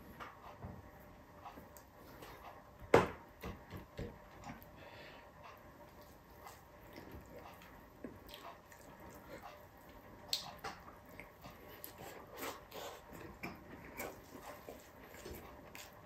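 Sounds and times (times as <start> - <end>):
person chewing: 5.9 - 16.0.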